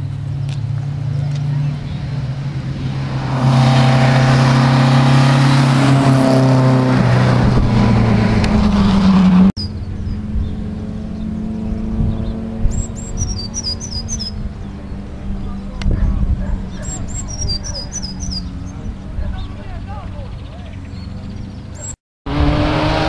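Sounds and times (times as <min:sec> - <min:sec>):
bird chirping: 0:09.6 - 0:22.0.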